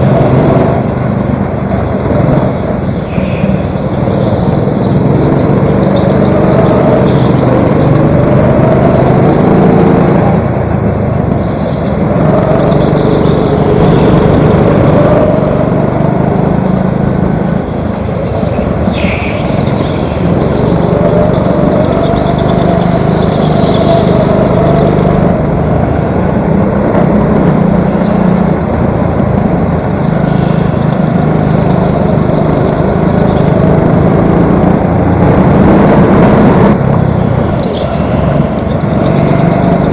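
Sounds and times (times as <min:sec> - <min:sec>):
go-kart engine revving: 0:00.0 - 0:39.9
other karts passing: 0:00.0 - 0:39.9
brief high squeal: 0:18.9 - 0:19.5.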